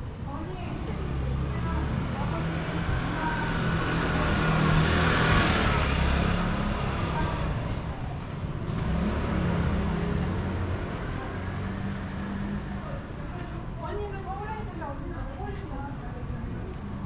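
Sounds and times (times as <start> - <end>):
motor scooter passing: 0.7 - 13.2.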